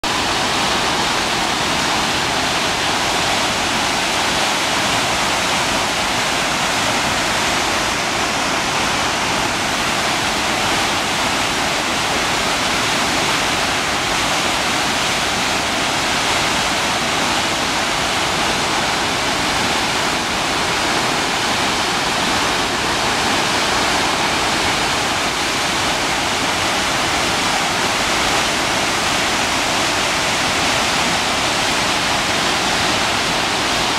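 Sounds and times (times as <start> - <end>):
waterfall rushing: 0.0 - 33.9.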